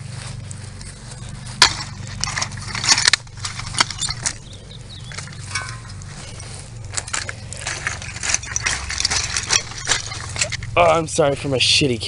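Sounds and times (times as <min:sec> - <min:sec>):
low steady rumble: 0:00.0 - 0:12.0
wood bonfire crackling: 0:00.0 - 0:12.0.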